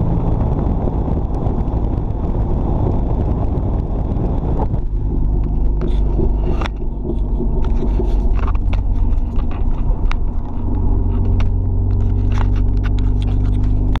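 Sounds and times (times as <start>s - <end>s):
car engine droning: 0.0s - 14.0s
camera handling clicks and scrapes: 7.6s - 14.0s.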